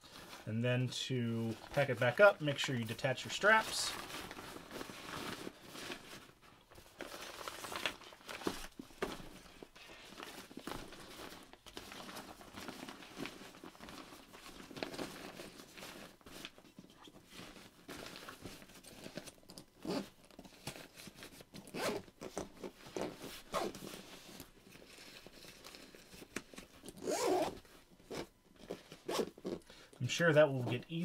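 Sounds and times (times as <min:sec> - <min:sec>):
nylon bag rustling: 0:01.4 - 0:29.6
zipper being pulled: 0:19.8 - 0:20.2, 0:21.6 - 0:23.8, 0:27.0 - 0:28.3, 0:29.0 - 0:29.6.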